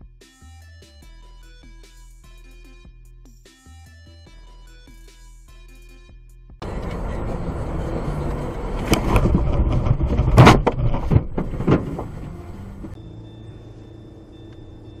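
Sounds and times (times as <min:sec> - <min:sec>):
car road noise from inside: 0:06.6 - 0:15.0
faint high whine: 0:13.0 - 0:15.0.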